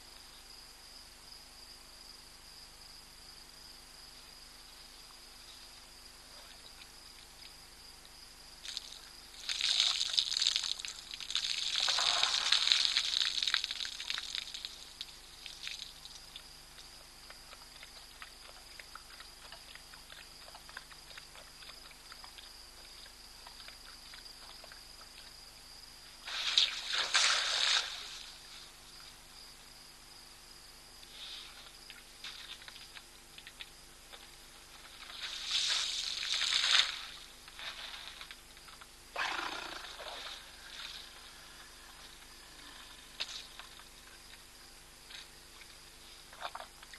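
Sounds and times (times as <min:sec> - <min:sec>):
elephant splashing water: 0:09.5 - 0:14.2, 0:26.3 - 0:28.2.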